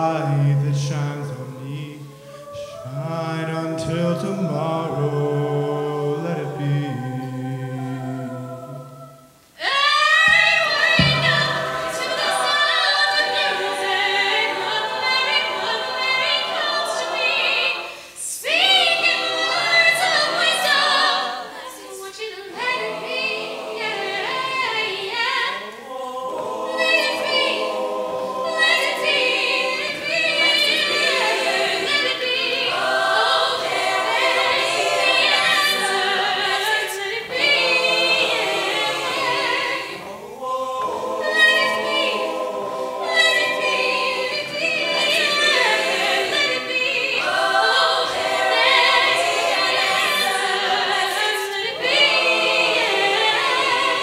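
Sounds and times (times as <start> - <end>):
male soloist singing: 0.0 - 7.6
choir singing: 0.0 - 54.0.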